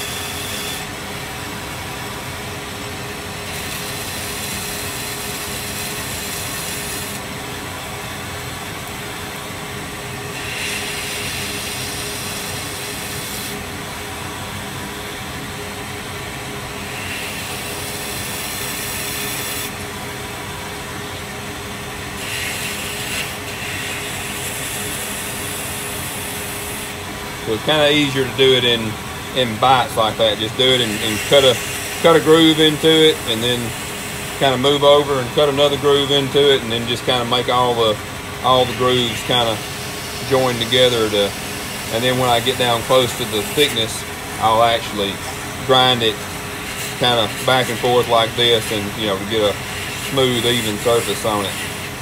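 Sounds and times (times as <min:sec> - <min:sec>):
grinder motor hum: 0:00.0 - 0:52.0
metal grinding hiss: 0:10.3 - 0:13.5, 0:22.2 - 0:52.0.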